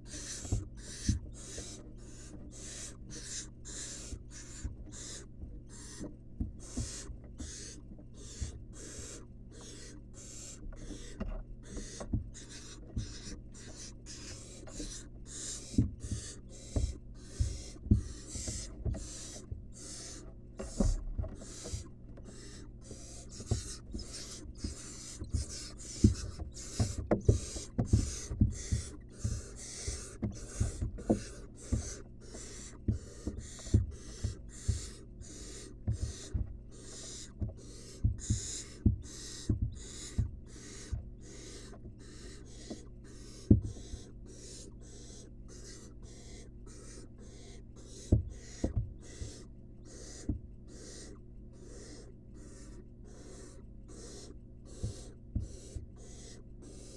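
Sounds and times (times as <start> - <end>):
owl chicks rasping hisses: 0.0 - 56.9
thumps and scuffles in nest box: 23.3 - 32.0.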